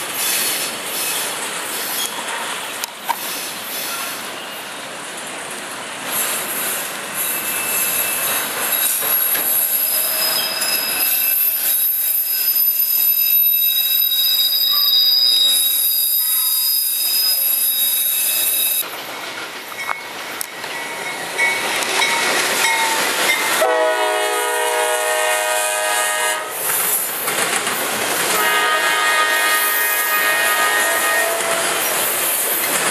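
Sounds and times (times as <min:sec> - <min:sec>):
train rumbling: 0:00.0 - 0:32.9
train wheels squealing: 0:00.2 - 0:02.5, 0:03.1 - 0:04.8, 0:06.5 - 0:18.9.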